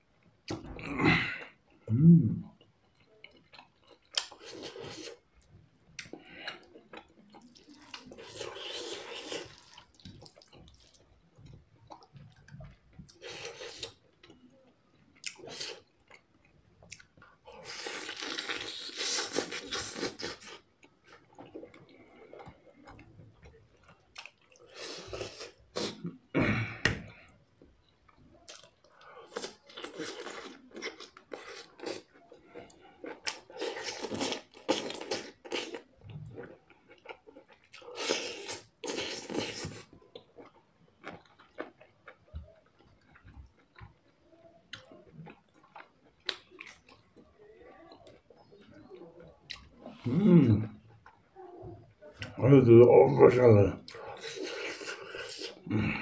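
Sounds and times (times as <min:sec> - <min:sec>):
chewing and slurping noodles: 0:06.1 - 0:14.1, 0:15.2 - 0:26.0, 0:28.5 - 0:47.3, 0:53.9 - 0:56.0.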